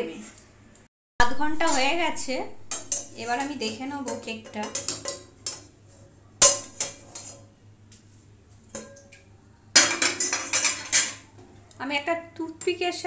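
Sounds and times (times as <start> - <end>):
metal cookware clanking: 1.2 - 7.5, 8.7 - 11.3.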